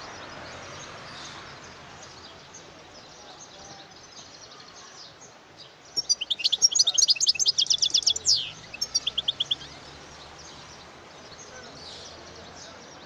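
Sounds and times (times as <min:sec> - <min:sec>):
goldfinch twittering: 0:06.0 - 0:09.7.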